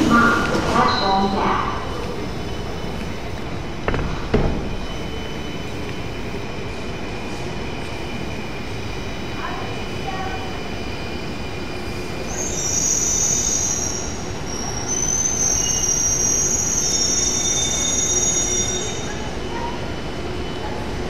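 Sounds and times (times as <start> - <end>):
high-pitched wheel squeal: 12.2 - 19.3.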